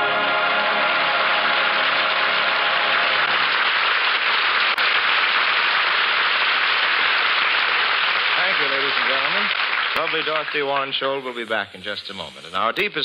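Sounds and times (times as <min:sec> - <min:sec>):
choir and orchestra: 0:00.0 - 0:03.5
audience applauding: 0:00.0 - 0:11.4.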